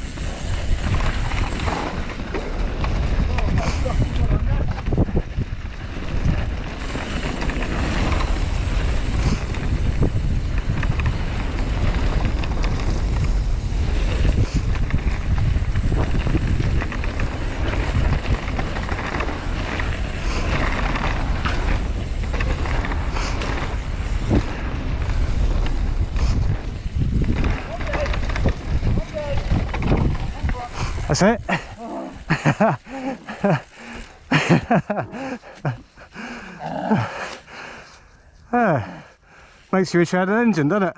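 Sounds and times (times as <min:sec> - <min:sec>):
bike knocks and rattles: 0:00.0 - 0:30.7
tyre rumble over dirt: 0:00.0 - 0:37.4
wind buffeting microphone: 0:00.0 - 0:37.8.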